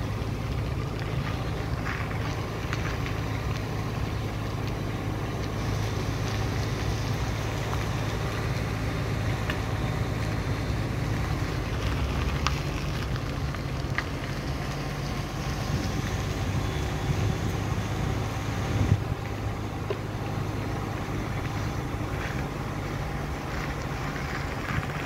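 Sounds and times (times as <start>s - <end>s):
vehicle driving rumble: 0.0s - 25.0s
wind on microphone: 15.4s - 19.2s.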